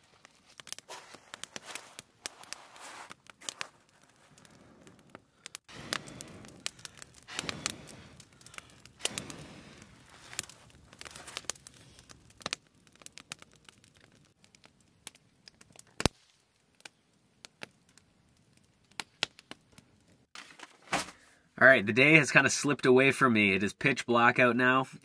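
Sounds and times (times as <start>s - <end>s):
wood fire crackling: 0.0s - 21.5s
breath blown onto fire: 4.2s - 12.4s.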